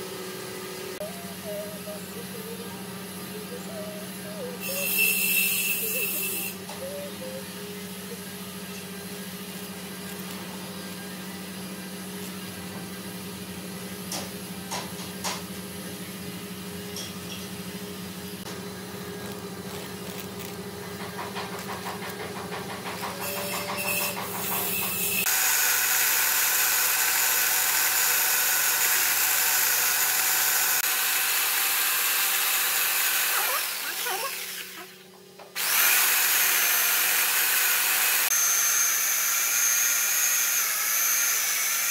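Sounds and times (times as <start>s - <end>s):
machinery motor hum: 0.0s - 25.2s.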